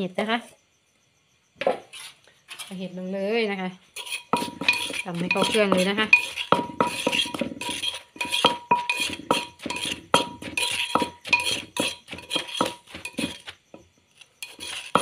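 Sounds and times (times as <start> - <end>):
pestle pounding in clay mortar: 4.0 - 13.8, 14.4 - 15.0.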